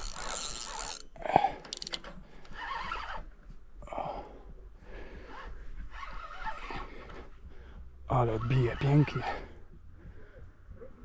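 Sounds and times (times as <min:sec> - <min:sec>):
man breathing: 0:01.2 - 0:02.6, 0:03.8 - 0:05.9, 0:06.6 - 0:08.0, 0:09.3 - 0:11.0.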